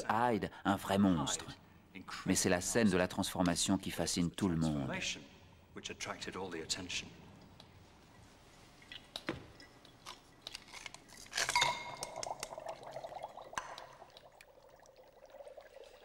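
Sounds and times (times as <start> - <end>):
dry ice fizzing and bubbling: 8.2 - 16.0
glass clinking: 9.5 - 9.8, 11.4 - 14.0.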